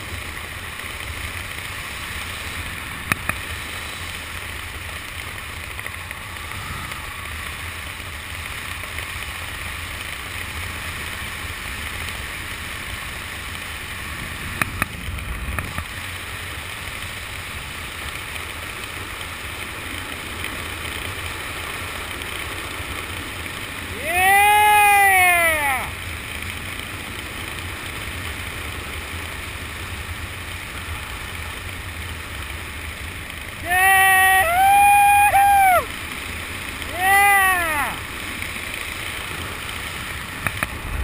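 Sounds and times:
wind rushing over microphone: 5.8s - 8.0s.

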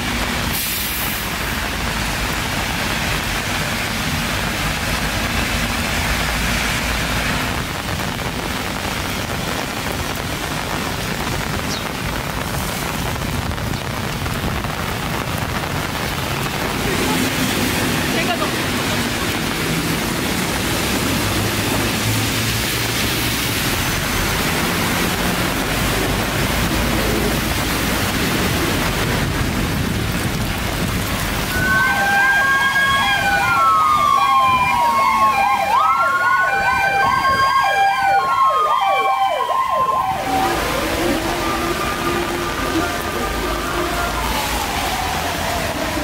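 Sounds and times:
rain hiss: 0.0s - 35.8s, 39.1s - 46.0s
emergency vehicle siren: 31.2s - 46.0s.

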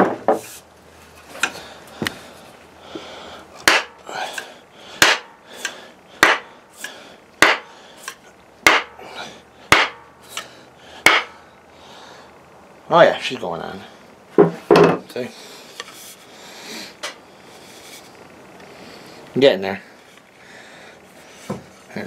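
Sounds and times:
wooden mallet knocking on wood: 14.4s - 15.0s.

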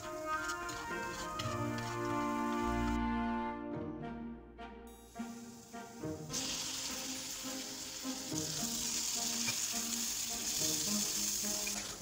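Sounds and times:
chicken sizzling in frying pan: 0.0s - 2.7s, 5.5s - 12.0s
spatula turning food: 0.0s - 3.0s.

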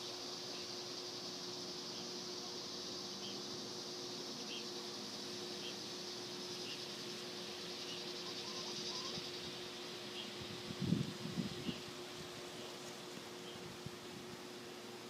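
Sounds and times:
short insect chirps: 0.0s - 11.9s
high-pitched insect drone: 0.0s - 12.7s.

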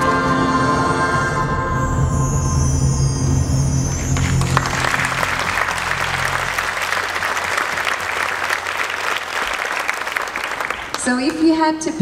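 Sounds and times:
low music notes: 0.0s - 9.4s
audience applauding: 4.0s - 11.5s.

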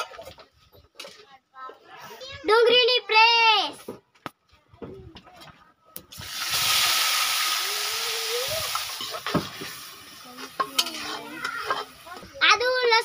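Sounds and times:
paste sizzling in hot oil: 6.1s - 13.0s
steel spoon stirring: 8.7s - 12.2s.

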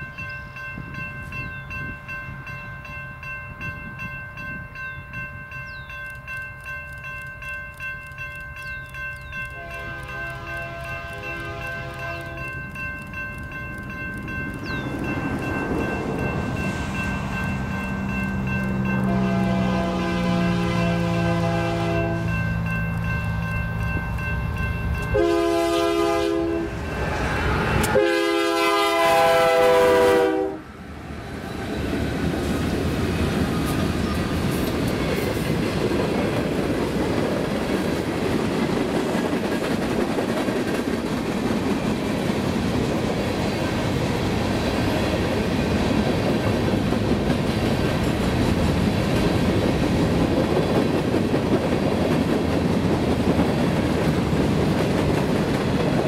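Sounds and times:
train wheels clickety-clack: 5.6s - 19.6s, 31.5s - 56.0s
train air horn blasts: 9.6s - 12.4s, 19.0s - 22.3s, 25.1s - 30.7s.

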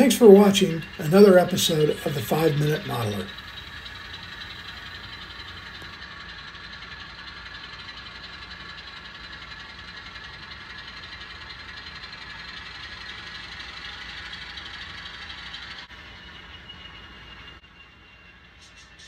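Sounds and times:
simulated diesel engine rumble: 0.0s - 19.0s
whining tones: 0.0s - 19.0s.

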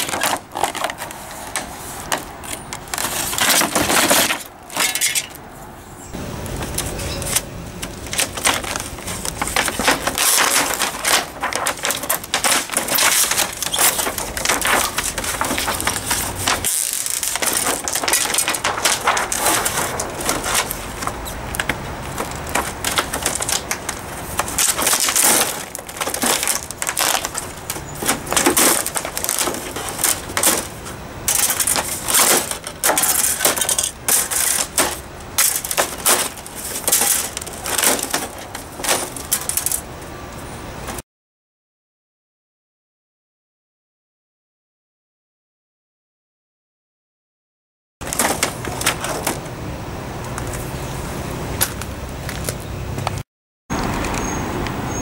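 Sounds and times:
plastic sheets crinkling: 0.0s - 5.4s, 6.4s - 39.9s, 48.0s - 49.6s.

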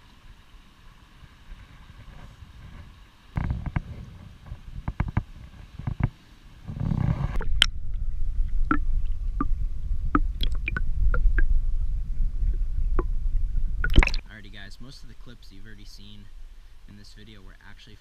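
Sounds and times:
muffled underwater rumble of water: 0.4s - 18.0s
small clicks underwater: 13.8s - 14.2s
knocks and splashes: 13.8s - 14.3s.

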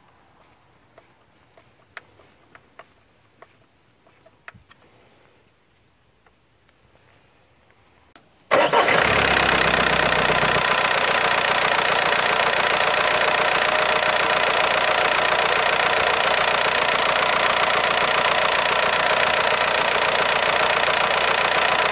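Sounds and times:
diesel engine starting and idling: 8.5s - 21.9s.

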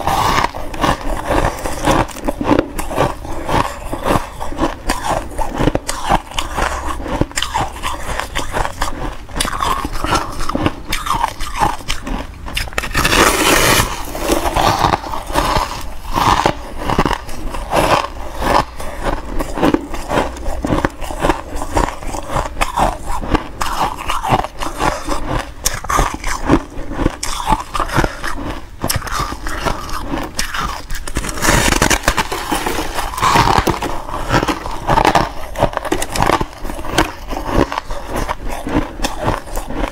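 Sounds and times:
crunchy chewing of frost: 0.0s - 39.9s.

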